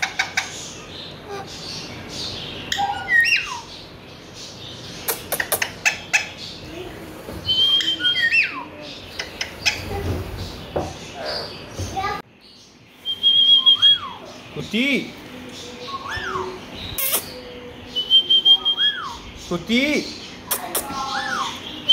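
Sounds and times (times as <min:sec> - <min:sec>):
parakeet whistle: 0:13.1 - 0:14.2, 0:18.0 - 0:19.2.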